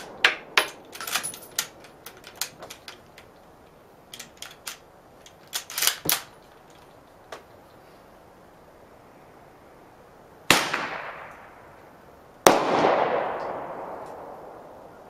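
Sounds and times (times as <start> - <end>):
echoing gunshots: 10.5 - 11.6, 12.4 - 14.6.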